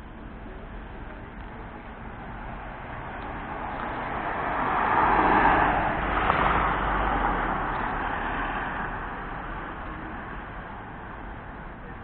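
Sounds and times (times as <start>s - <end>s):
car passing by: 2.5s - 10.5s.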